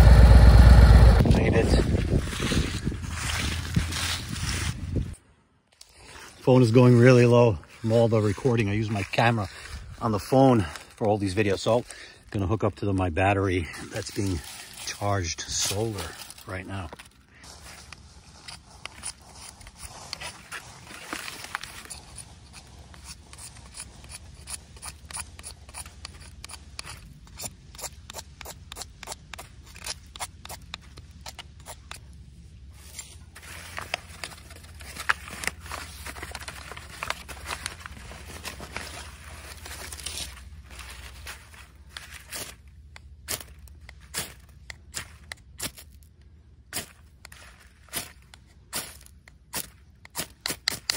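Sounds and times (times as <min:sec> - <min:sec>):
knife scraping metal rod: 0:21.6 - 0:32.0.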